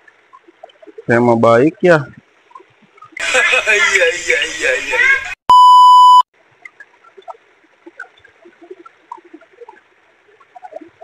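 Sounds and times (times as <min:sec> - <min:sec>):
trickle of running water: 0:00.0 - 0:03.2, 0:06.4 - 0:11.0
water drips and plinks: 0:00.0 - 0:03.2, 0:06.4 - 0:11.0
loud electronic beep: 0:05.5 - 0:06.2.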